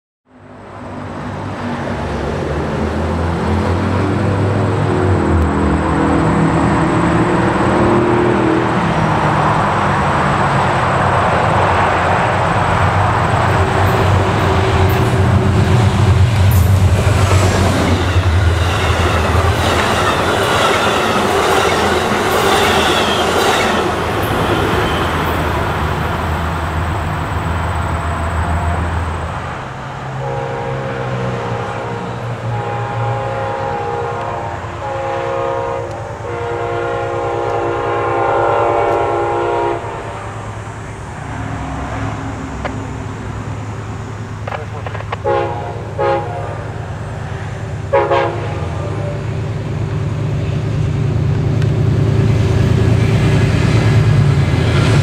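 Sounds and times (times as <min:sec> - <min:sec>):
diesel locomotive engine: 0:00.3 - 0:55.0
train wheels clattering: 0:13.4 - 0:26.1
train horn: 0:30.2 - 0:40.2, 0:45.2 - 0:46.8, 0:47.9 - 0:49.4.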